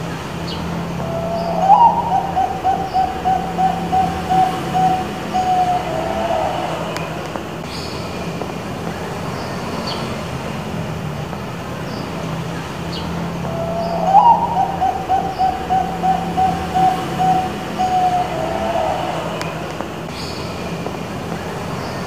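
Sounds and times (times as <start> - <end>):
dove cooing: 0.9 - 7.4, 13.4 - 19.9.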